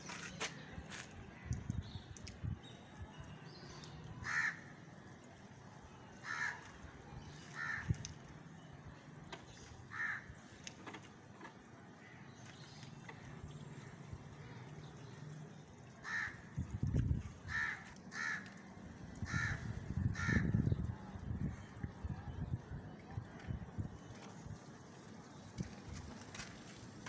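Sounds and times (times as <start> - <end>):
crows cawing: 4.2 - 4.7, 6.2 - 6.8, 7.4 - 8.1, 9.9 - 10.5, 16.0 - 16.6, 17.4 - 20.7.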